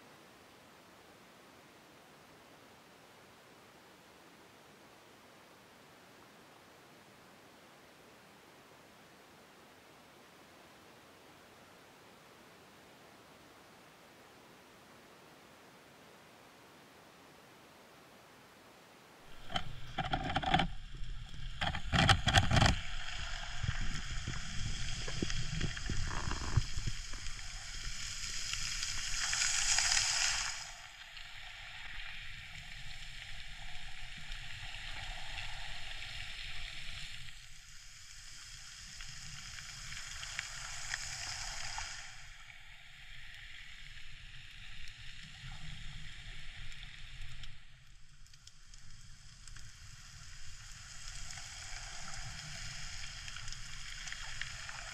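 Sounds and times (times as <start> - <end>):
underwater hiss and crackle: 19.3 - 54.9.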